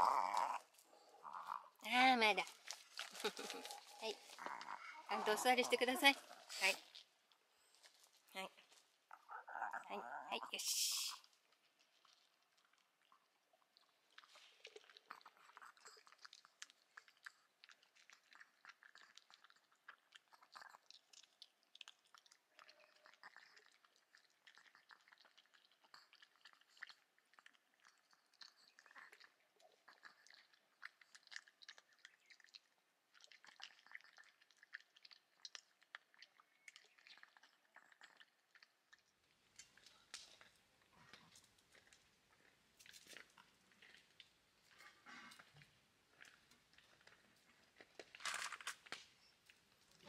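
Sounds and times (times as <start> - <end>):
dog crunching dry kibble: 0.0 - 9.4, 11.2 - 50.0.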